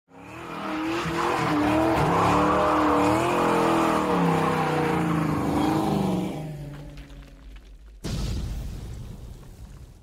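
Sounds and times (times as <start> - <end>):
car engine revving: 0.1 - 7.1
tires squealing: 0.1 - 7.1.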